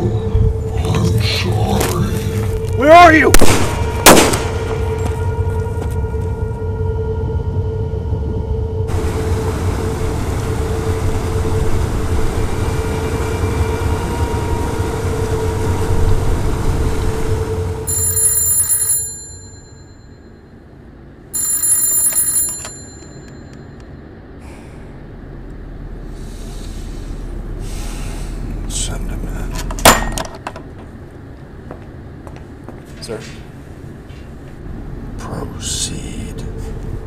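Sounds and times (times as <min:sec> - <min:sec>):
loud steady noise: 0:00.0 - 0:17.9
low held hum: 0:00.0 - 0:37.0
telephone ringing: 0:17.8 - 0:20.6, 0:21.2 - 0:24.1.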